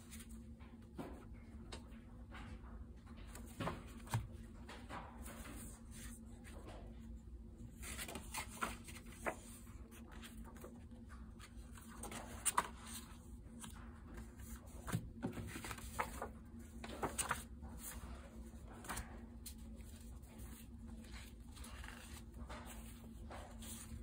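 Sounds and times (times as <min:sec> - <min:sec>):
paper cards rustling: 0:07.8 - 0:24.0.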